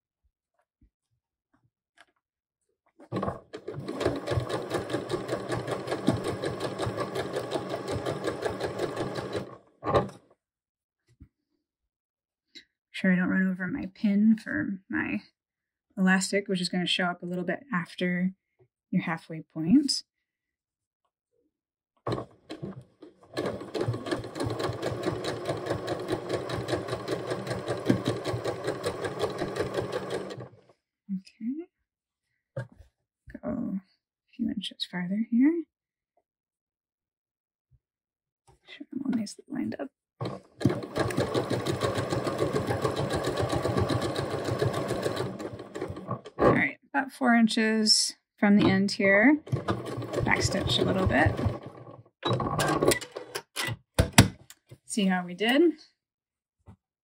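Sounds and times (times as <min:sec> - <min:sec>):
sewing machine stitching: 0:03.0 - 0:10.2, 0:22.1 - 0:30.7, 0:40.2 - 0:46.6, 0:49.4 - 0:53.7.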